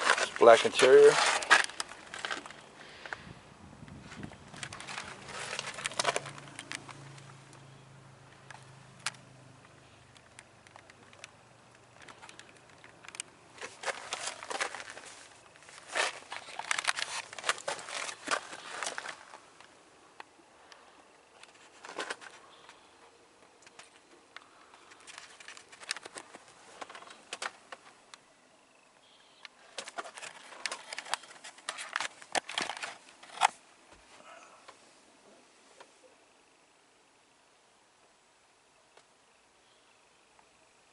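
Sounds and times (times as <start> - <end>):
camera handling rustling: 3.9 - 7.2, 12.0 - 19.7, 24.8 - 27.9, 29.7 - 33.6.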